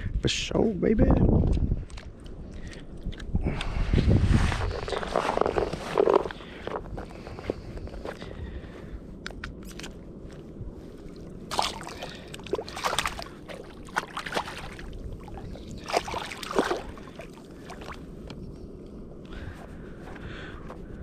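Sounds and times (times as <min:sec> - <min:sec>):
rush of water and wind: 0:10.6 - 0:18.6
short water splashes: 0:11.5 - 0:18.0.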